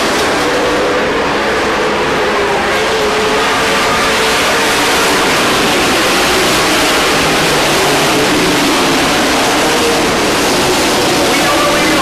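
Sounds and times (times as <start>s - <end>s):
race truck engines running hard: 0.0s - 12.0s.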